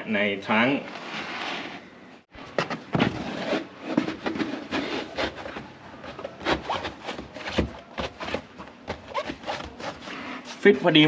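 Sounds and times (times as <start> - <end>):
floor mat knocking and scraping: 2.5 - 10.1.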